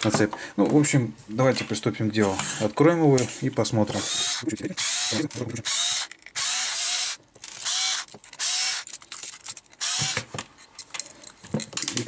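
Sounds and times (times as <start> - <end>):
cordless screwdriver running: 4.0 - 8.9, 9.8 - 10.2.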